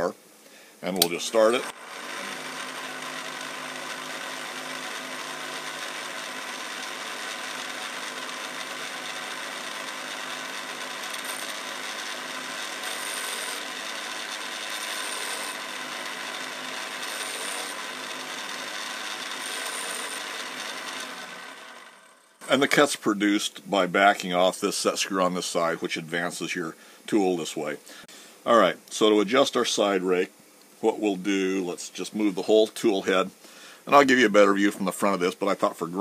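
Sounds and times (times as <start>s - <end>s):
grinding wheel rubbing metal: 1.2s - 22.9s.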